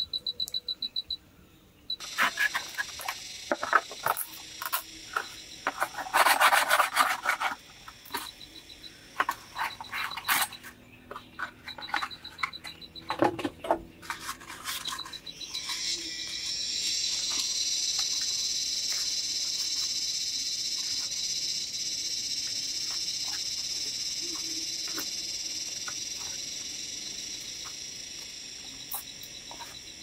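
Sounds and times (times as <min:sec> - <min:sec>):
crickets chirping: 0:00.0 - 0:30.0
knife scraping bark: 0:02.0 - 0:07.6.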